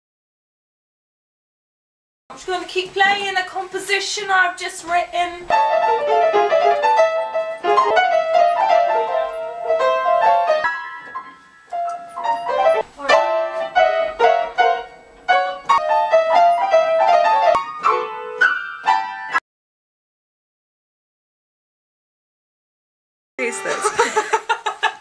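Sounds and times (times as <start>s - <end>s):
upright piano playing: 5.1s - 19.4s.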